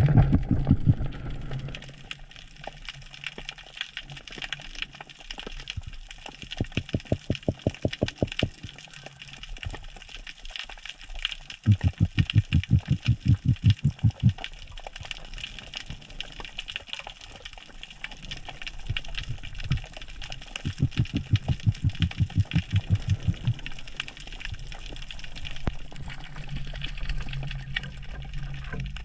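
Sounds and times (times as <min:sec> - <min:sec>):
low croaking pulses underwater: 0:00.0 - 0:01.8, 0:05.8 - 0:10.1, 0:11.6 - 0:29.0
underwater crackling clicks: 0:03.2 - 0:26.0.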